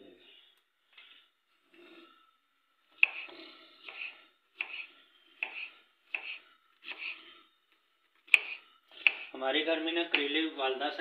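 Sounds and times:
knife slicing on cutting board: 3.0s - 7.2s, 8.3s - 9.3s.

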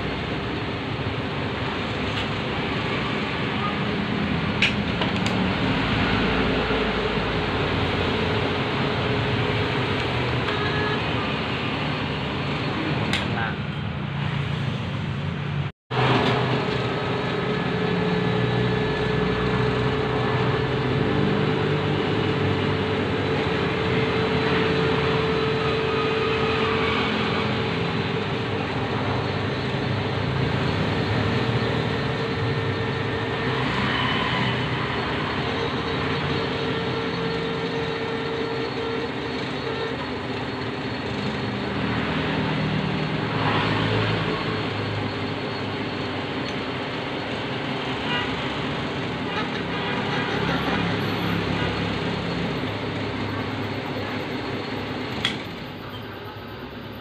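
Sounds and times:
metal lathe humming: 16.9s - 49.3s.

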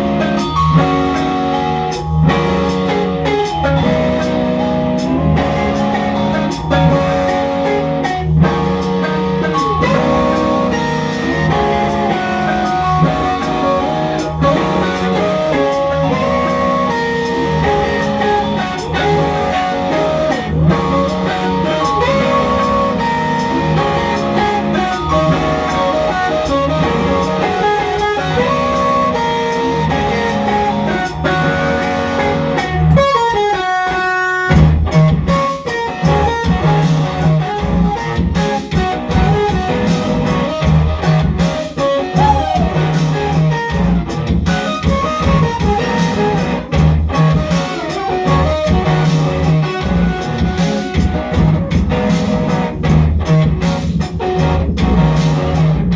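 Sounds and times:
electric guitar with effects: 0.0s - 55.9s.

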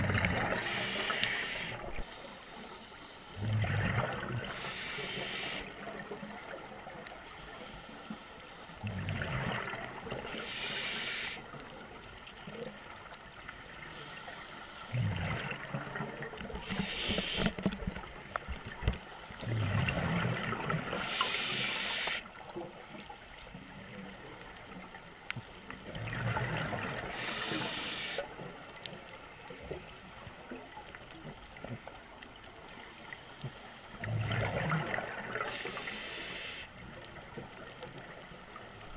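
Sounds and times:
exhaled bubbles gurgling: 0.0s - 2.1s, 3.3s - 6.6s, 8.8s - 11.6s, 14.9s - 22.2s, 25.7s - 28.6s, 33.9s - 38.3s
scuba regulator breathing underwater: 0.4s - 5.8s, 10.2s - 11.5s, 16.5s - 17.6s, 20.8s - 22.3s, 26.9s - 28.4s, 34.1s - 36.8s.

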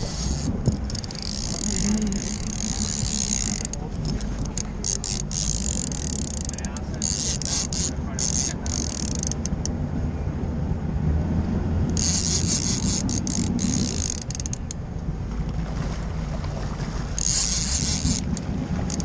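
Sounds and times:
fishing reel clicks: 0.0s - 9.7s, 11.9s - 14.8s, 17.2s - 19.0s
fishing reel drag buzzing: 0.0s - 9.7s, 11.9s - 14.8s, 17.2s - 19.0s
boat motor running: 0.0s - 19.0s.

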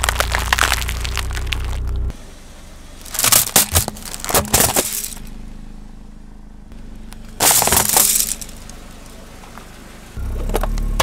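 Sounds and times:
wooden pencils cracking: 0.0s - 1.9s
car engine idling: 0.0s - 11.0s.

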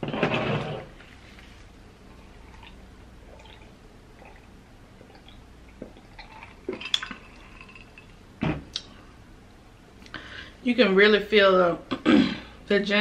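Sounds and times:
person sipping and gulping: 2.1s - 8.1s.

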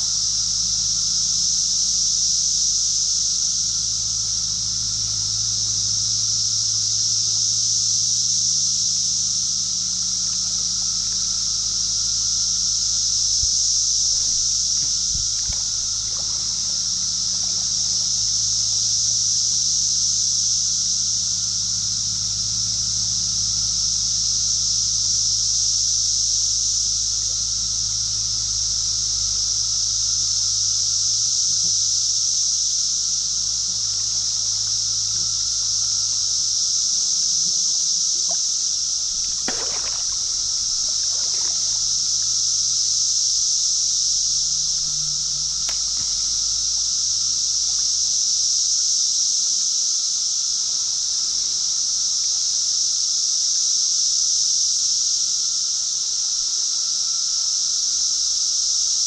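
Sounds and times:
creek water trickling: 9.7s - 19.4s, 38.2s - 48.0s
water sloshing: 13.4s - 18.7s, 38.3s - 42.4s, 44.7s - 47.2s
water splash: 14.1s - 18.3s, 38.3s - 42.4s.

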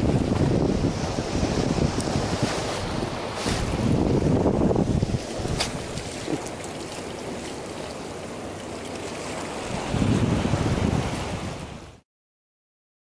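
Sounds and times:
wind buffeting microphone: 0.0s - 6.6s, 9.6s - 12.0s
low rush of water: 0.0s - 12.0s
sea water washing around concrete: 0.0s - 12.0s.

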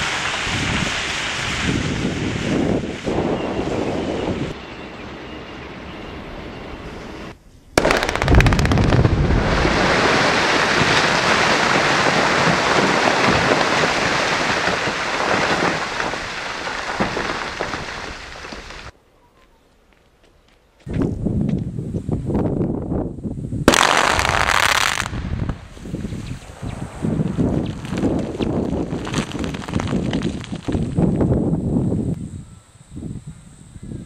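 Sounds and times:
wind on microphone: 0.0s - 4.6s, 8.1s - 11.5s, 20.9s - 34.0s
quarry blast detonations: 7.8s - 18.9s, 23.7s - 25.8s
rumble of falling rock: 7.8s - 18.9s, 27.2s - 31.4s.

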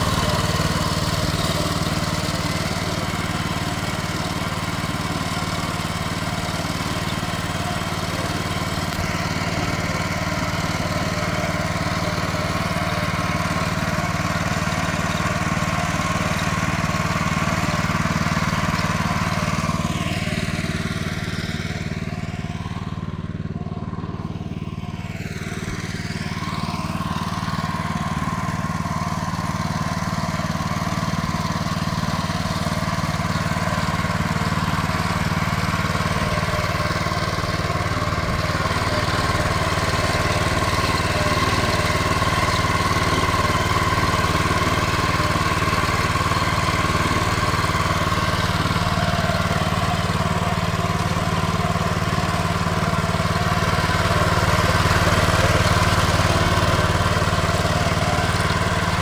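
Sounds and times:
tractor engine running under load: 0.0s - 59.0s.

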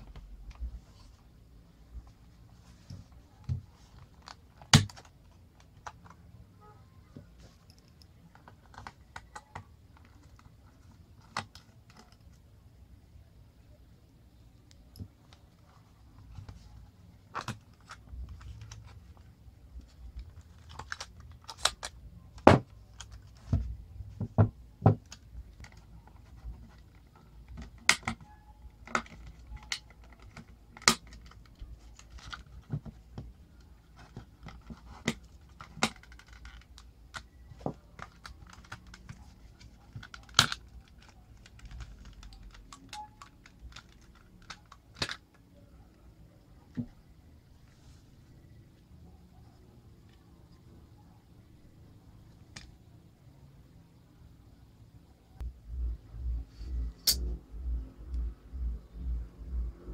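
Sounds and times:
plastic case clicks and snaps: 4.2s - 6.1s.

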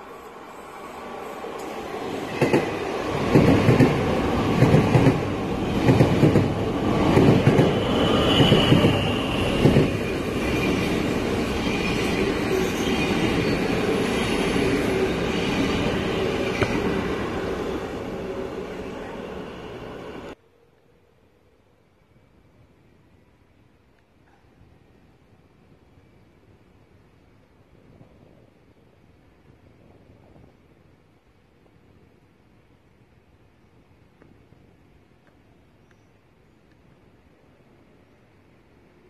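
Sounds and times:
train rumbling past: 0.0s - 20.4s
high wheel squeal: 7.6s - 16.7s.

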